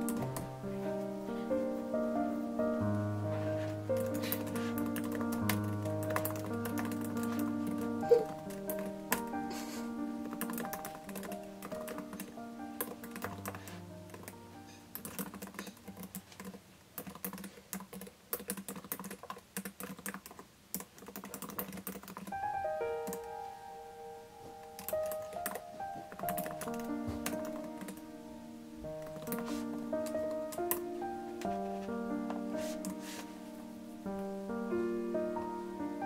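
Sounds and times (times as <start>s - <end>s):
background music: 0.0s - 16.4s, 22.3s - 36.0s.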